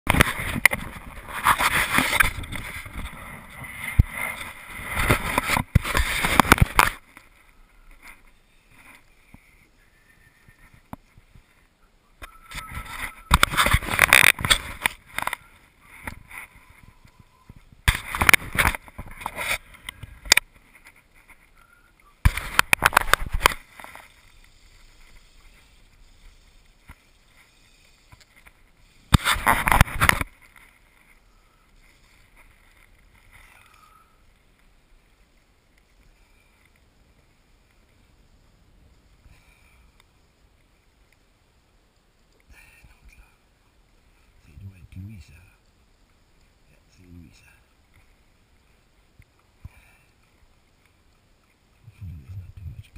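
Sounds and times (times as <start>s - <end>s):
hand rubbing on microphone: 0.1s - 6.9s.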